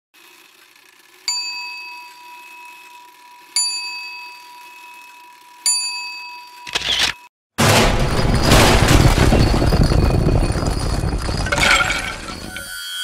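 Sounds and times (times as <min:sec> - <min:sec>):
bell ringing: 0:10.1 - 0:13.0.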